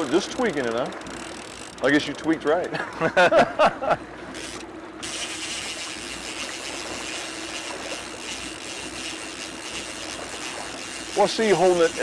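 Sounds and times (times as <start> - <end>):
boat engine running: 0.0 - 12.0
wind and water rushing: 0.0 - 12.0.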